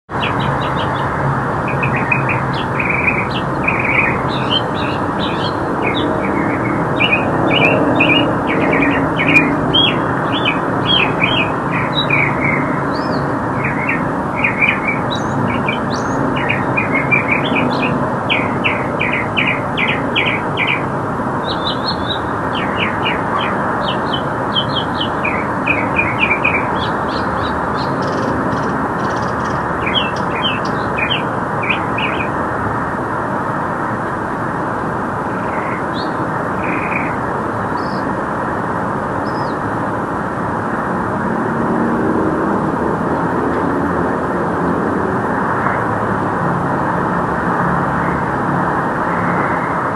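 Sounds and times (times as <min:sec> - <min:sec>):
mockingbird singing: 0:00.1 - 0:01.1, 0:01.7 - 0:32.3.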